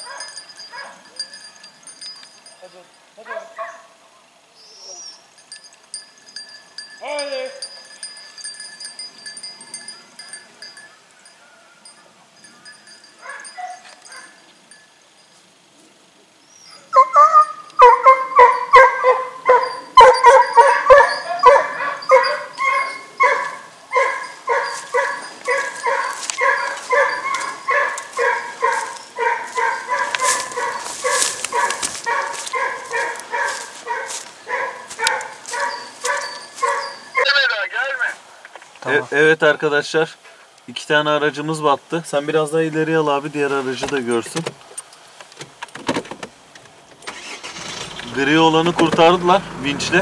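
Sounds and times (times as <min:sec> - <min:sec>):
dog barking rapidly: 0:00.0 - 0:01.1, 0:03.2 - 0:03.9, 0:13.2 - 0:14.3, 0:17.0 - 0:37.4.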